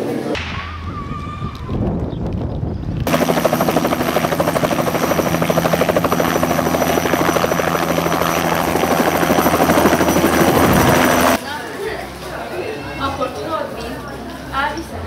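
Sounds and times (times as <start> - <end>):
helicopter rotor chop: 3.0 - 11.4
turbine hum: 3.0 - 11.4.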